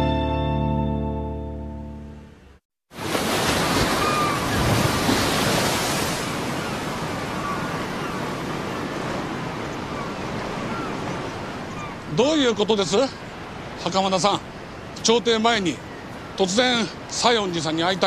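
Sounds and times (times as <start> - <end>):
waves washing on rocky shore: 3.0 - 9.6.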